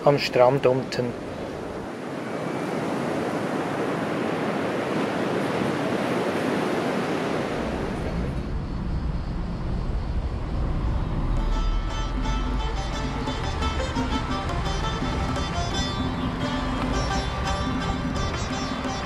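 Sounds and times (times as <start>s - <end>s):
sea surf breaking: 0.0s - 19.0s
vehicle driving rumble: 7.5s - 19.0s.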